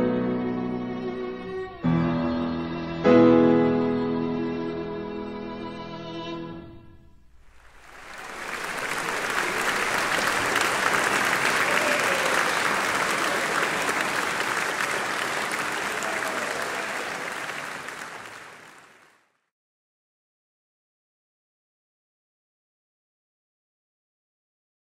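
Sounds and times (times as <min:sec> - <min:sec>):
violin and piano note: 0:00.0 - 0:06.8
audience applauding: 0:07.4 - 0:19.3.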